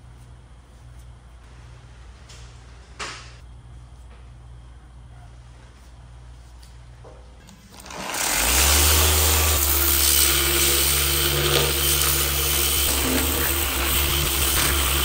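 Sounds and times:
orbital sander running: 7.7 - 15.0.

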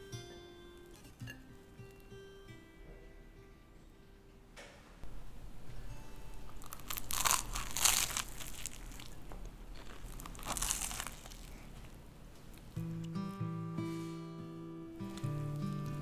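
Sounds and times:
bread crust crackling as torn: 6.5 - 12.7.

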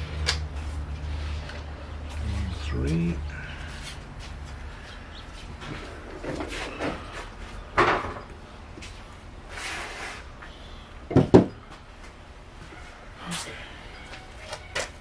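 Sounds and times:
knocks on engine parts: 11.1 - 11.5.

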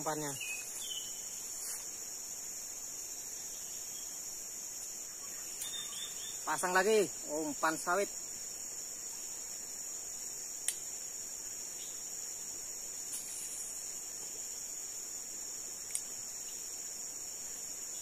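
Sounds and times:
insects droning: 0.0 - 18.0
faint clicks: 10.6 - 10.8, 15.8 - 16.1.

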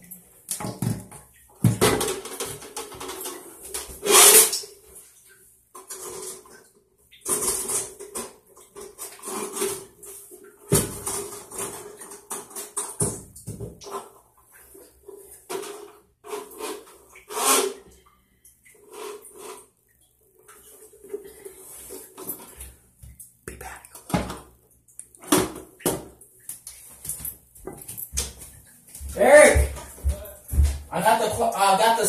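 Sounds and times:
clattering at a sink: 0.0 - 4.6, 7.2 - 14.2.

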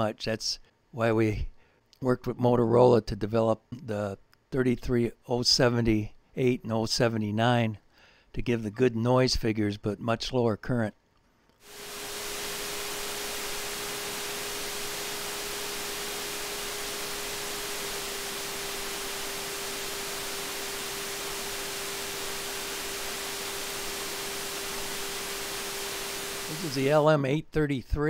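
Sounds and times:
steady electronic hiss: 11.6 - 27.3.

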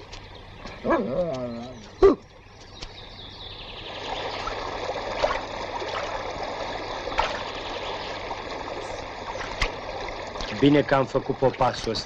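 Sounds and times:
stream running over rocks: 3.8 - 12.0
feet splashing in water: 4.0 - 10.8.

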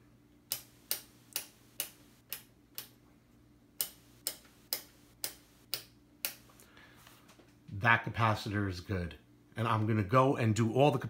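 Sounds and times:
rotary switch clicking: 0.5 - 3.0, 3.8 - 6.4.

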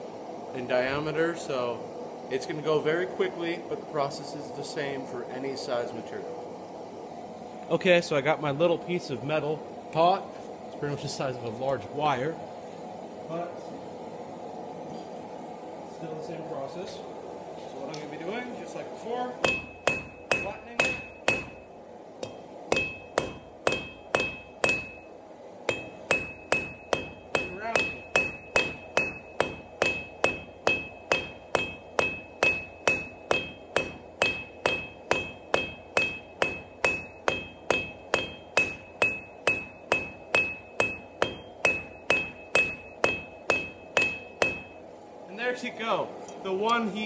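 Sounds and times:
hammer striking metal on anvil: 19.4 - 25.1, 25.7 - 44.8.

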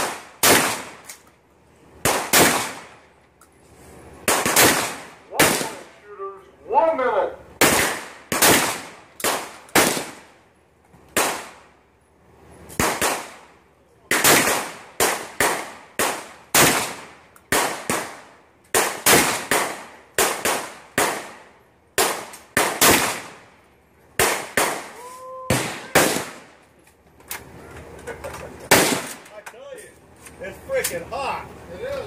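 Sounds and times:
gunshot echo: 0.0 - 1.1, 2.0 - 2.9, 24.2 - 26.6, 28.7 - 29.2
semi-automatic gunshots: 0.0 - 1.1, 2.0 - 3.1, 4.2 - 6.0, 7.6 - 10.4, 11.1 - 11.7, 12.8 - 23.5, 24.2 - 26.6, 28.7 - 29.3.

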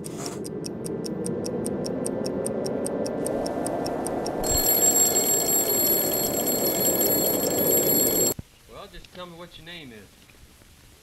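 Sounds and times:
clock ticking: 0.5 - 5.2
alarm clock ringing: 4.4 - 8.4.

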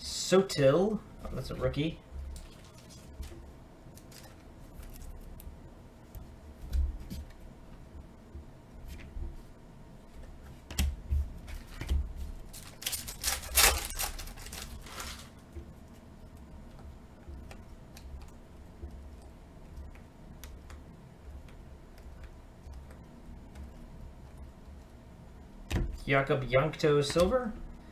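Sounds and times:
foil pack crinkling and tearing: 12.5 - 15.3.

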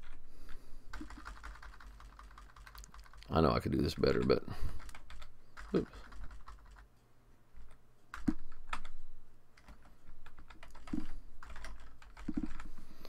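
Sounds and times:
typing on keyboard: 0.9 - 6.9, 9.6 - 12.7.

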